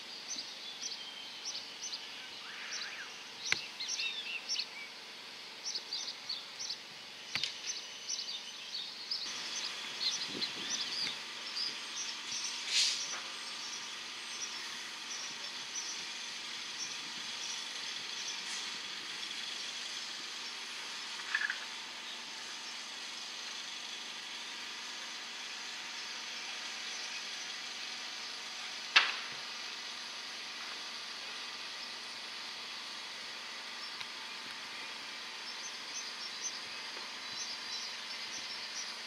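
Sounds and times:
outdoor background hiss: 0.0s - 39.0s
faint bird chirps: 0.2s - 5.0s.

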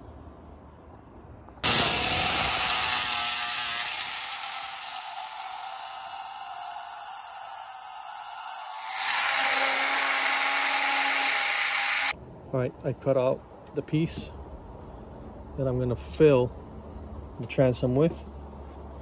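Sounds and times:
power tool cutting fiberglass: 1.6s - 12.2s.

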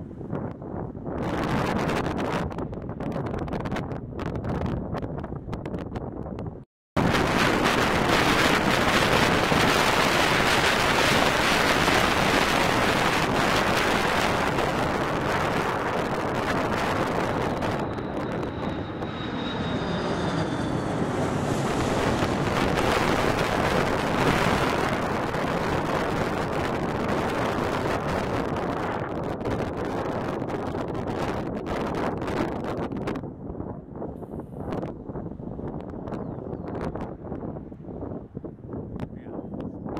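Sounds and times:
wind buffeting microphone: 0.0s - 39.9s
high engine whine: 7.0s - 29.0s
jet engine roar: 7.0s - 33.2s.

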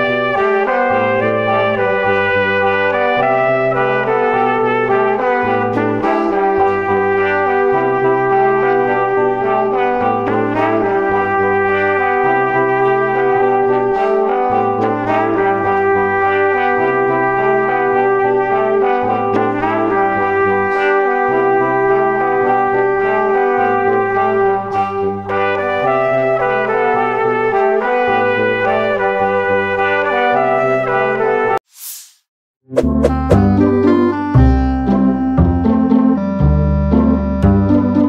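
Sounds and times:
brass held notes: 0.0s - 31.6s
bass line: 32.7s - 38.0s.

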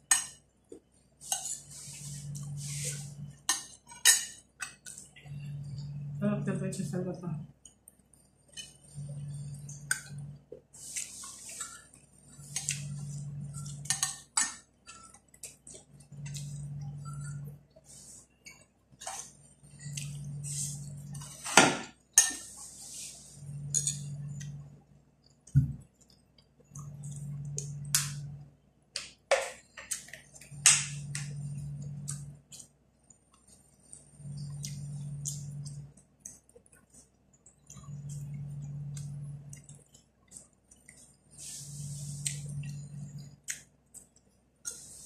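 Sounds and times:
low hum: 5.0s - 7.5s, 8.2s - 14.2s, 16.0s - 18.2s, 26.6s - 28.6s, 30.4s - 32.4s, 33.8s - 36.0s, 37.7s - 39.8s, 41.4s - 43.4s.

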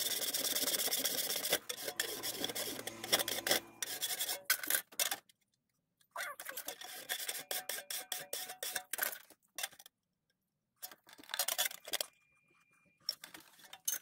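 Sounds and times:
file rasping aluminium sheet edge: 0.0s - 4.8s, 6.6s - 8.8s.

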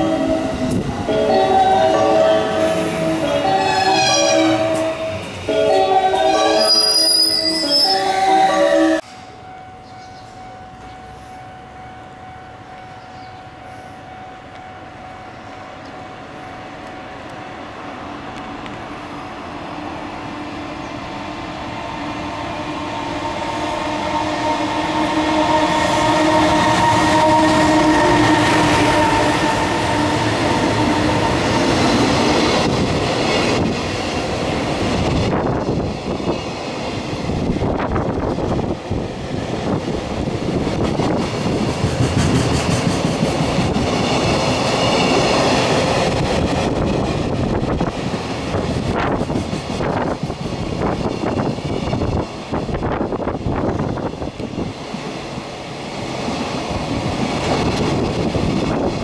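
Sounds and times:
train wheels clattering on rails: 26.0s - 59.0s.

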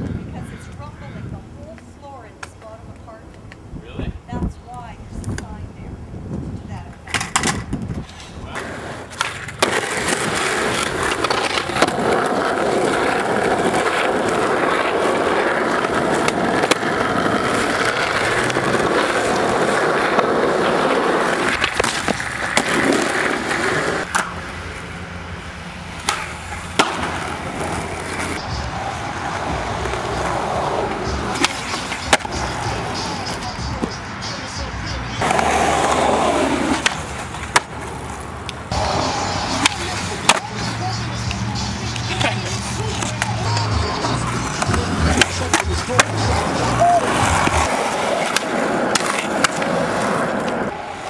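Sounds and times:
skateboard wheels rolling on pavement: 0.0s - 51.0s
skateboard clacking on landing: 29.4s - 34.4s, 39.5s - 49.8s.

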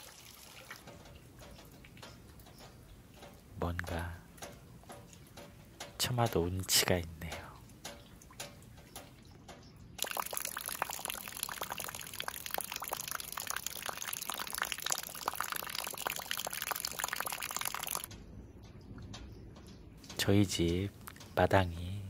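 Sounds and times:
rain splashing into puddle: 0.0s - 5.8s, 10.0s - 18.1s.

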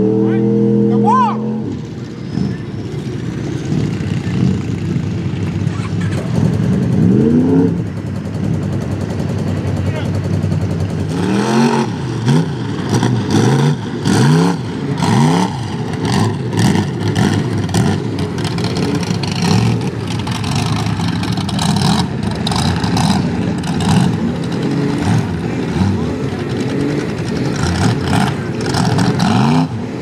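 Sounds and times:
truck engine revving hard: 0.0s - 8.7s, 9.3s - 30.0s.

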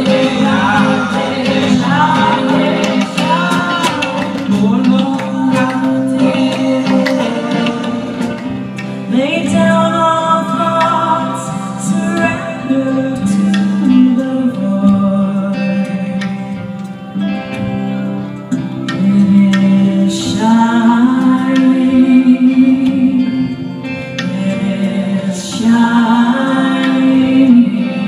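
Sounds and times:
acoustic guitar and plucked strings: 0.0s - 28.0s
voices singing slow melody: 0.0s - 28.0s.

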